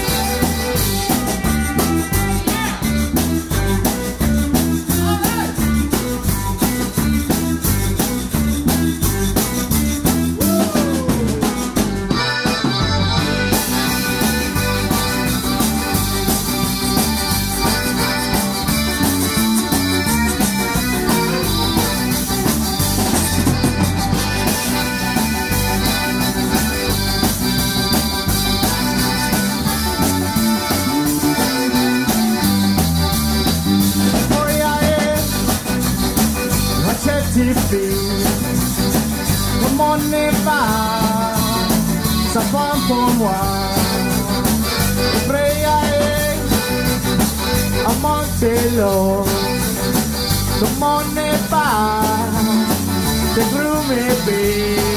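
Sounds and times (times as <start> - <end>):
live zydeco band playing: 0.0 - 54.9
wavering melody line: 5.8 - 37.0.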